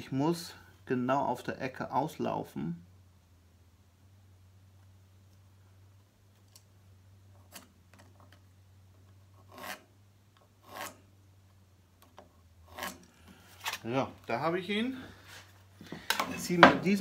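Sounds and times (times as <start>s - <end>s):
low steady hum: 0.0s - 17.0s
pencil scratching on wood: 9.4s - 9.9s, 10.6s - 11.0s, 12.7s - 13.1s.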